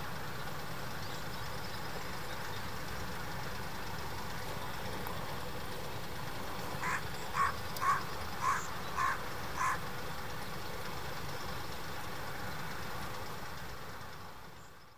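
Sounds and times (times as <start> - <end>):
crow cawing: 6.8 - 9.8.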